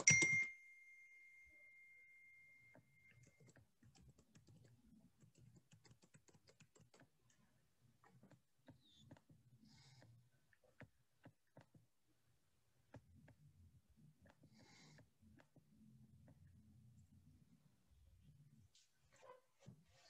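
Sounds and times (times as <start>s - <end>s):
ringing tone: 0.0s - 3.3s
computer clicking: 3.1s - 7.1s.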